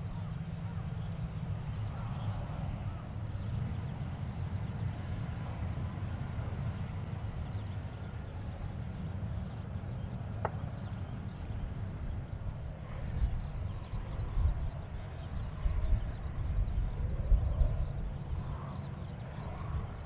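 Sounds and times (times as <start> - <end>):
jet engines idling: 0.0 - 20.0.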